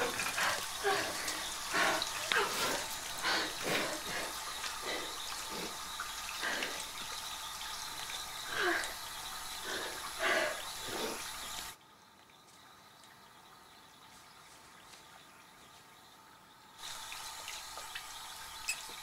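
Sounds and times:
tap running into basin: 0:16.8 - 0:19.0.

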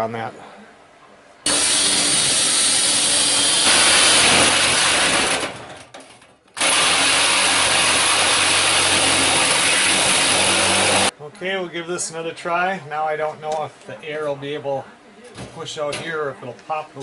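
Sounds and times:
cordless drill boring through metal: 0:01.5 - 0:05.5, 0:06.6 - 0:11.1
jigsaw cutting metal: 0:01.5 - 0:05.8, 0:06.6 - 0:11.1.

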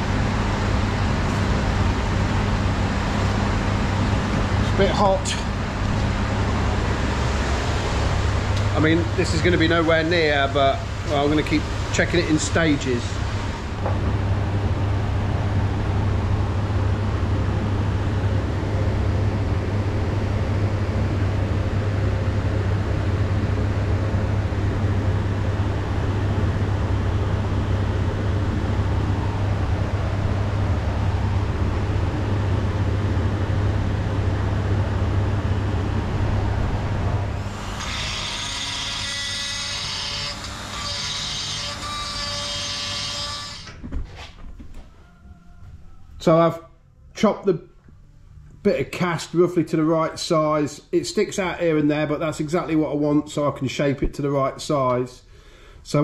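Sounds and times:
electric die grinder whine: 0:35.9 - 0:43.8.

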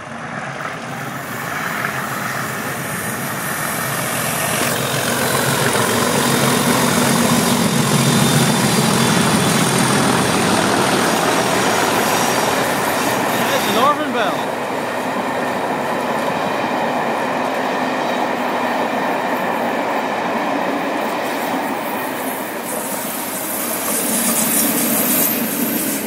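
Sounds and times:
diesel locomotive engines droning: 0:00.0 - 0:26.0
train coaches rolling past: 0:00.0 - 0:26.0.

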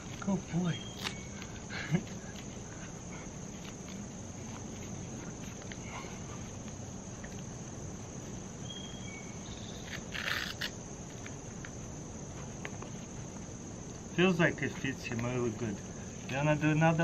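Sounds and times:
insects chorus: 0:00.0 - 0:17.0
strap fastening rasp: 0:09.8 - 0:10.7.

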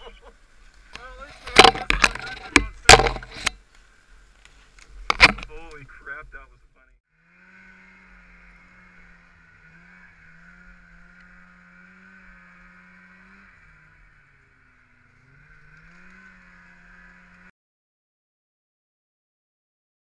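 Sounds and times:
snowmobile engine running: 0:00.0 - 0:03.6, 0:07.2 - 0:17.5.

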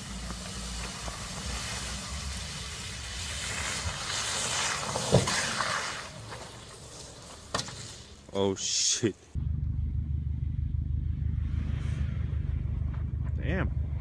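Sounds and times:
car driving through snow: 0:00.0 - 0:07.4.

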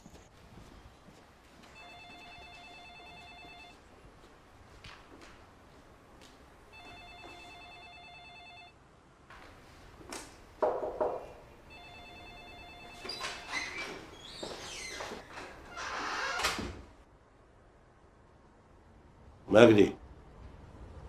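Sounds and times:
telephone ringing electronic trill: 0:01.8 - 0:03.8, 0:06.8 - 0:08.7, 0:11.7 - 0:13.8.

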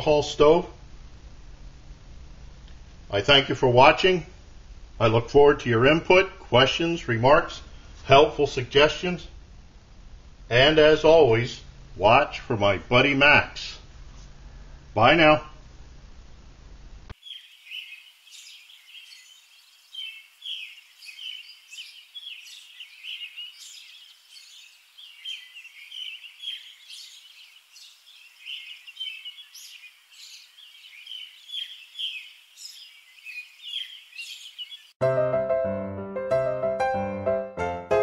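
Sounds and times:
small birds chirping: 0:17.1 - 0:35.0
piano music: 0:35.0 - 0:38.0.

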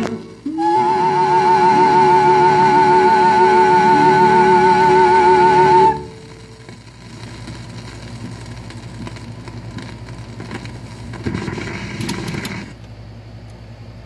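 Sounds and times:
record surface noise and clicks: 0:00.0 - 0:00.4, 0:06.3 - 0:13.0
steady low hum: 0:00.0 - 0:14.0
record changer mechanism clatter: 0:06.6 - 0:12.8.

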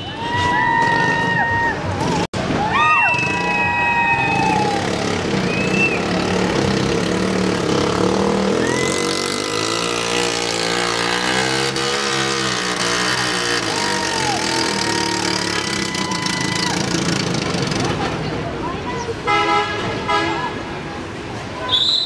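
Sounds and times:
scooter engine revving: 0:03.1 - 0:18.2.

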